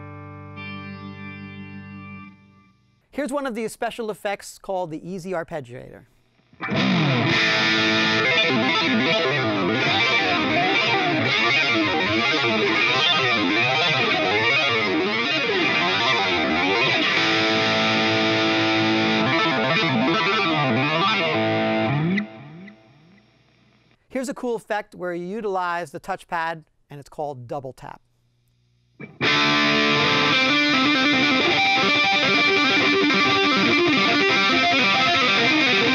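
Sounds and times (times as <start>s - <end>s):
distorted electric guitar arpeggios: 0.0s - 3.0s, 6.4s - 24.0s, 29.0s - 35.9s.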